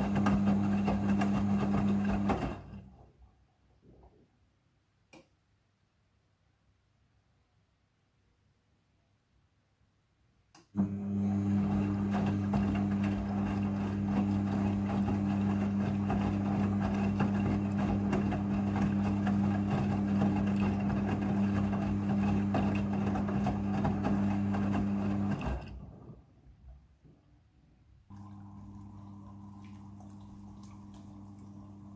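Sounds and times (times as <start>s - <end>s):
washing machine motor hum: 0.0s - 3.0s, 10.8s - 26.2s, 28.1s - 31.9s.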